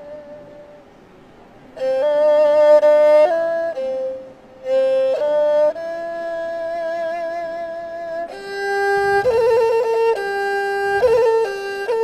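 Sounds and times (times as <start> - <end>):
erhu melody: 0.0 - 12.0.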